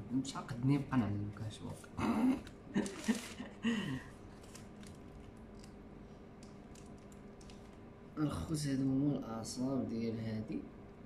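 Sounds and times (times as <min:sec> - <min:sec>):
plastic wrapper crinkling: 0:02.8 - 0:03.5, 0:04.3 - 0:05.8.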